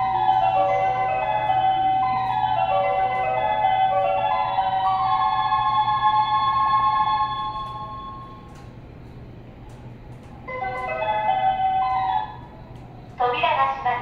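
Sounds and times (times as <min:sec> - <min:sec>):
electronic platform melody: 0:00.0 - 0:08.6
steady low hum: 0:00.0 - 0:14.0.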